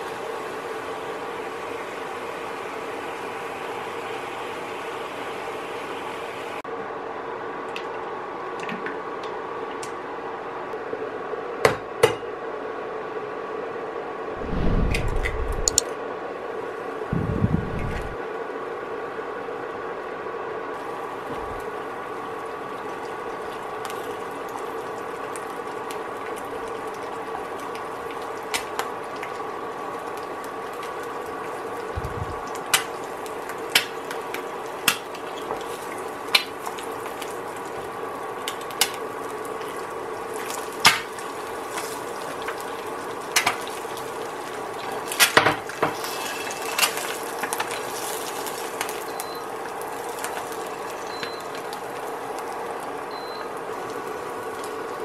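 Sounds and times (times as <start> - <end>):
egg sizzling in a frying pan: 0.0 - 6.6, 20.8 - 55.0
steady hum: 14.3 - 15.9, 17.0 - 18.2, 31.8 - 32.5.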